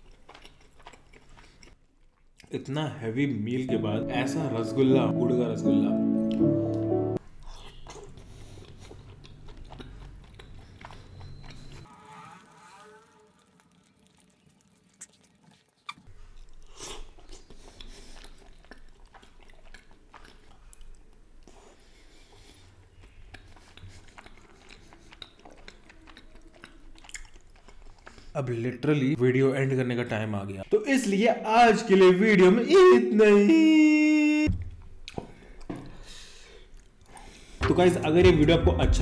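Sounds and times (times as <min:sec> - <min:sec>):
wet chewing mouth sounds: 0:00.0 - 0:02.5, 0:07.2 - 0:11.9, 0:13.6 - 0:28.4, 0:34.5 - 0:37.5.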